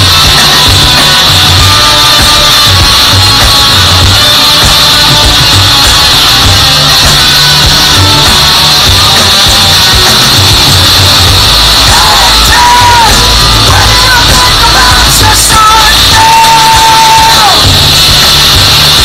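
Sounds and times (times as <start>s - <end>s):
live rock band playing: 0.0s - 19.0s
singer holding a long note: 11.4s - 18.0s.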